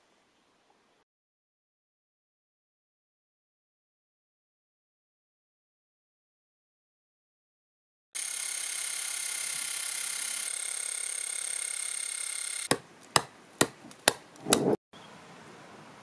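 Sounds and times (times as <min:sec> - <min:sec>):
wire wheel grinder whining: 0:08.2 - 0:12.8
axe striking wood: 0:12.7 - 0:14.8.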